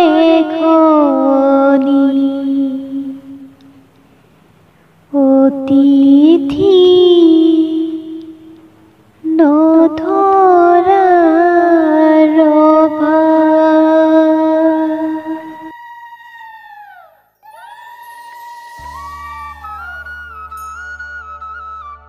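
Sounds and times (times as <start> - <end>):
woman singing: 0.0 - 3.5, 5.2 - 8.5, 9.2 - 15.7.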